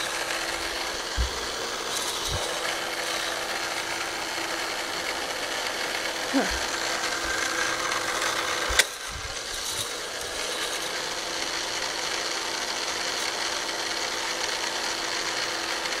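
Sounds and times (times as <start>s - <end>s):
small motor hum: 0.0s - 16.0s
plastic chain rattling: 6.3s - 11.3s.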